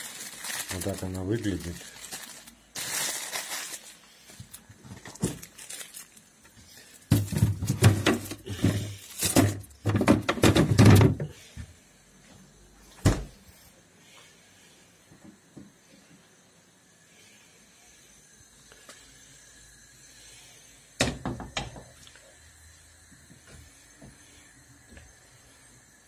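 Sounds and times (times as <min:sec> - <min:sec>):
plastic containers knocking and rustling: 0:04.3 - 0:05.8, 0:07.0 - 0:11.4
freezer drawer opening: 0:07.2 - 0:11.3
thump: 0:13.0 - 0:13.4.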